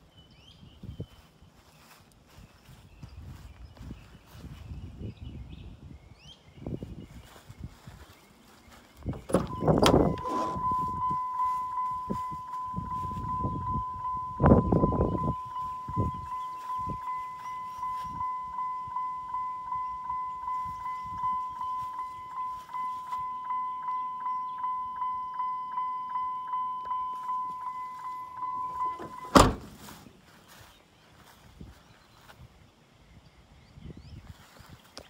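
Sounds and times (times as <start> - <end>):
car door slamming: 9.1 - 10.7, 28.5 - 29.9
car warning chime pulsing: 9.1 - 29.7.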